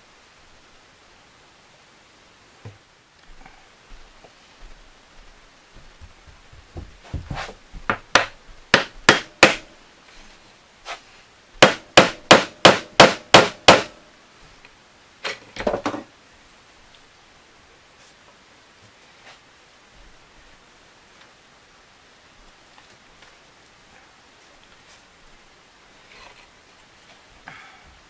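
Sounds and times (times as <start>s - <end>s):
hammer tapping wooden blocks: 6.7s - 9.7s, 11.6s - 14.0s.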